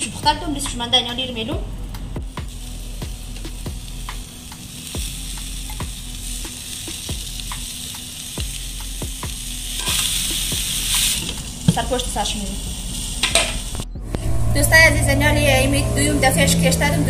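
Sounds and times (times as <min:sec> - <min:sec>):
meat sizzling on hot stones: 0:00.4 - 0:13.9.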